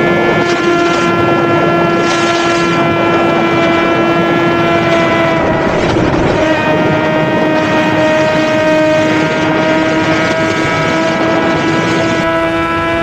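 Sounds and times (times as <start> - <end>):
motorcycle engine at high revs: 0.0 - 13.0
wind rushing over microphone: 0.0 - 13.0.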